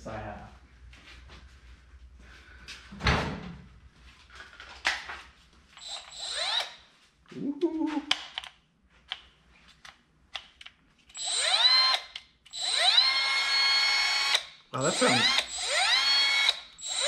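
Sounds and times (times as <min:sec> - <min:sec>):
cut-off tool motor whining: 0:05.8 - 0:06.8, 0:11.2 - 0:17.0.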